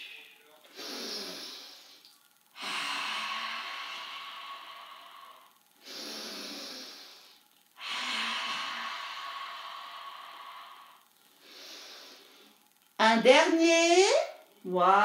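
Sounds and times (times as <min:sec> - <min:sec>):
woman breathing loudly: 0:02.6 - 0:12.6.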